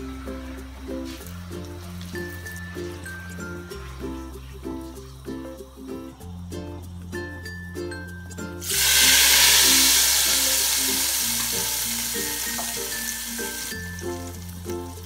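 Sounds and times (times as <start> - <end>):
light plucked background music: 0.0 - 15.0
hot oil sizzling in curry: 8.6 - 15.0.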